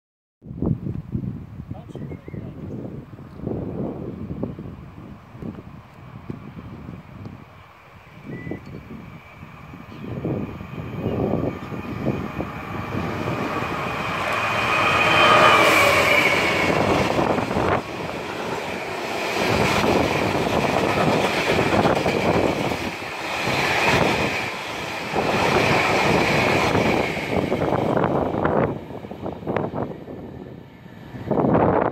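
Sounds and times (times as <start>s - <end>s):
diesel locomotive passing: 2.9s - 31.9s
high steady squeal: 7.5s - 31.9s.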